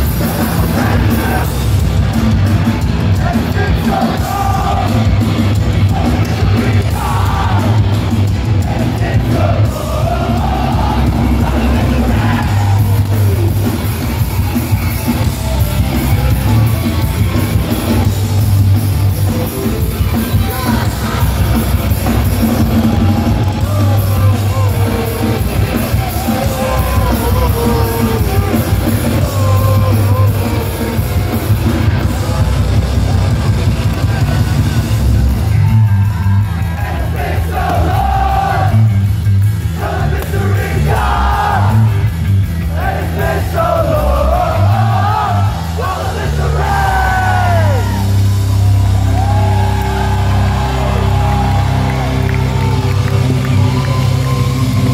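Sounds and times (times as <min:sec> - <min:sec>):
shouted singing: 0:00.0 - 0:01.7, 0:02.7 - 0:16.7, 0:19.7 - 0:32.5, 0:35.4 - 0:39.0, 0:39.6 - 0:42.0, 0:42.6 - 0:54.9
crowd noise: 0:00.0 - 0:54.9
live punk band playing: 0:00.0 - 0:54.9.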